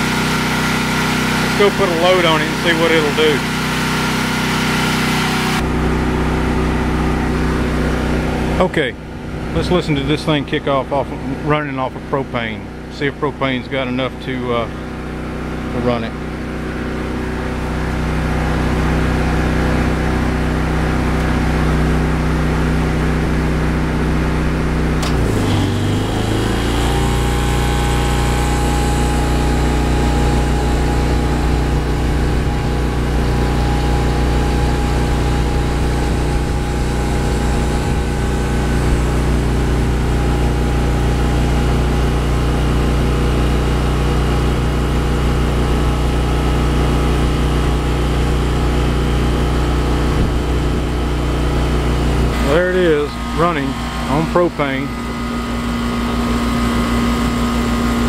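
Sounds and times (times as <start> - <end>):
condenser hum: 0.0 - 58.0
generator engine running: 0.0 - 58.0.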